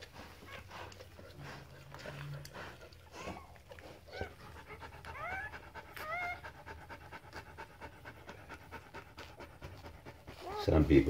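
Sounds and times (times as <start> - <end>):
dog panting rapidly: 0.0 - 11.0
puppies squeaking: 3.1 - 6.6, 10.3 - 11.0.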